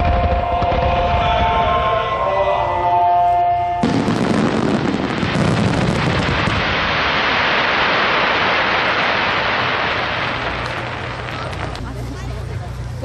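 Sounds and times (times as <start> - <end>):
crackling firework stars: 3.8 - 12.5.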